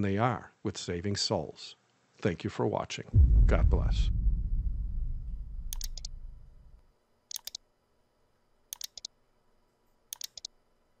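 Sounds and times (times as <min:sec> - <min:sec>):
low hum: 0:03.2 - 0:06.8
computer mouse double clicks: 0:05.7 - 0:06.1, 0:07.3 - 0:07.6, 0:08.7 - 0:09.1, 0:10.1 - 0:10.5.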